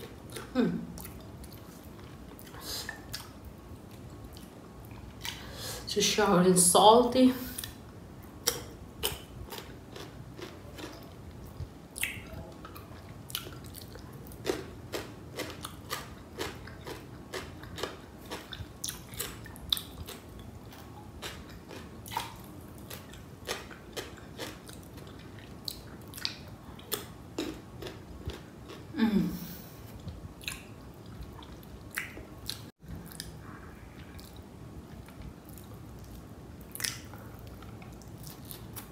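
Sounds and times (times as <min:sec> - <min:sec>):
chewing and biting food: 0:08.5 - 0:11.2, 0:12.0 - 0:28.9
person humming mm: 0:29.0 - 0:29.6
mouth clicks and smacks: 0:31.4 - 0:33.4.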